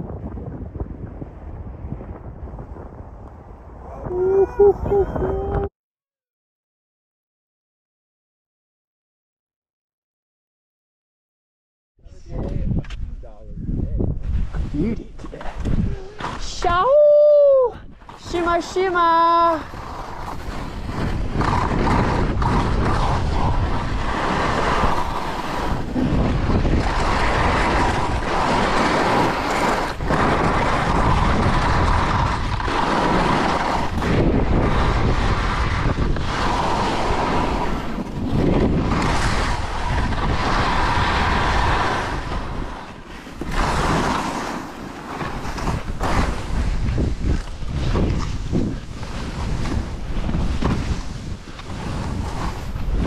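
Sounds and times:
wind buffeting microphone: 0.0 - 5.7, 12.0 - 53.0
skis scraping over snow: 18.0 - 53.0.

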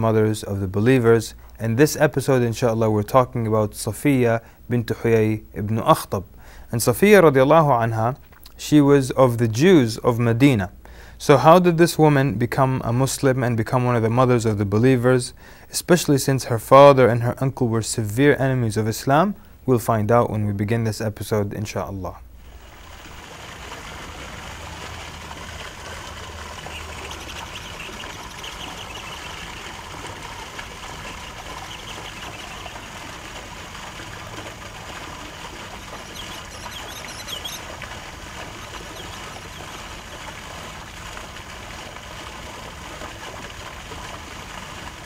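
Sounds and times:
fountain jets splashing into water: 22.4 - 45.0
high chirps: 26.6 - 29.8, 31.0 - 33.0, 35.7 - 37.7, 38.6 - 39.7.

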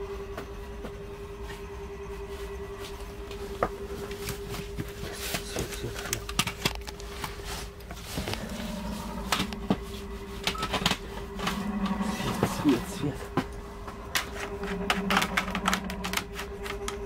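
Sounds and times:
steady low hum: 0.0 - 17.0
clicks knocks and rustles of handling: 4.1 - 8.5.

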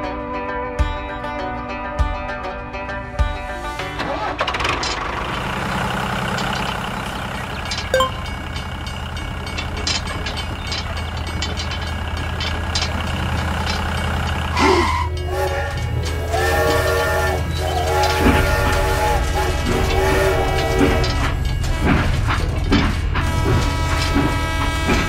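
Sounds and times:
toy train electronic whistle: 14.5 - 22.4, 23.2 - 25.0.

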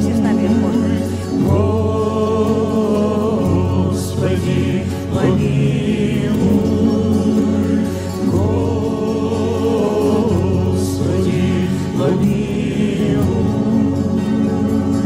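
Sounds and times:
choir singing slow church song: 0.0 - 15.0
musical accompaniment: 0.0 - 15.0.

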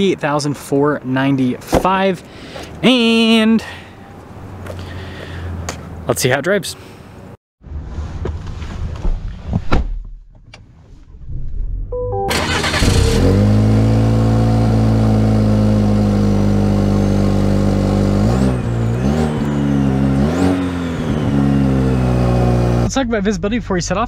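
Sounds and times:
car engine starting and idling: 11.8 - 23.0
car engine revving: 12.3 - 22.9.

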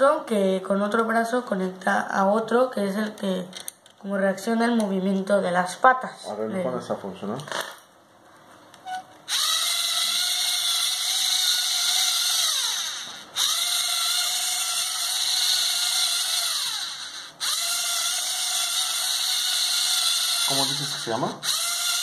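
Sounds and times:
motor whine with gear noise: 9.2 - 22.0.

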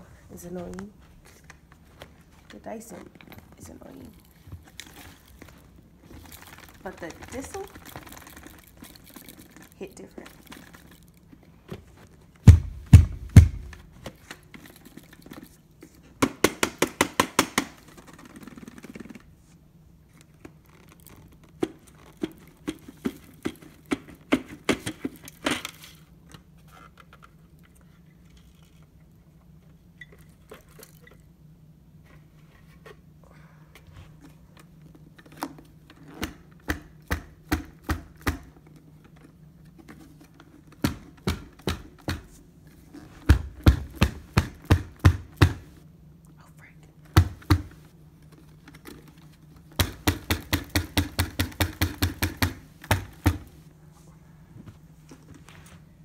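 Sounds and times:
faint steady hum: 0.0 - 56.0
knocking on vacuum dust bin: 12.5 - 13.8.

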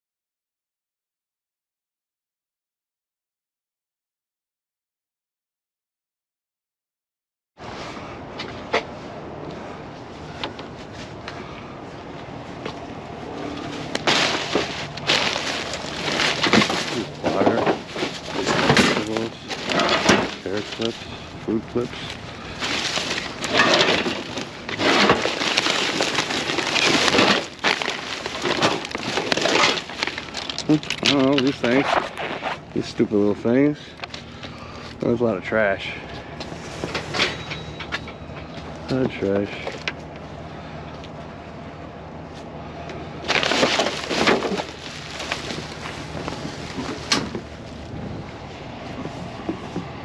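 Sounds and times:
steady low hum: 7.6 - 50.0
plastic bags rustling and crinkling: 13.5 - 33.0, 43.2 - 49.8.

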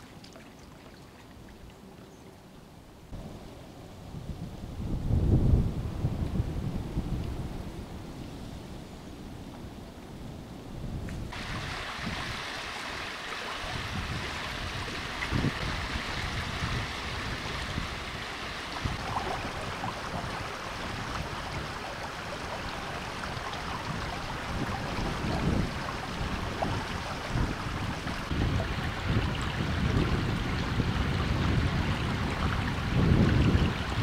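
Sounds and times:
wind gusting on microphone: 3.0 - 34.0
flooded river rushing: 11.3 - 34.0.

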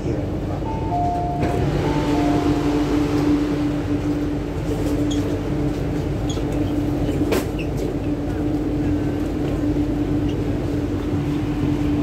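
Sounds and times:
train car rumble: 0.0 - 12.0
two-note door chime: 0.7 - 2.7.

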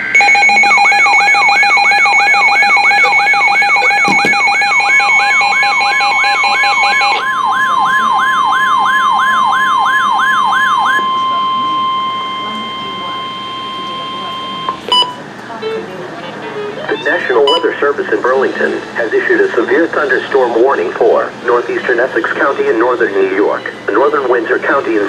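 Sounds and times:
pulsing beeps: 0.0 - 7.3, 10.7 - 15.2, 16.9 - 17.8
warbling siren-like alert: 0.0 - 14.9
steady warning tone: 0.0 - 25.0.

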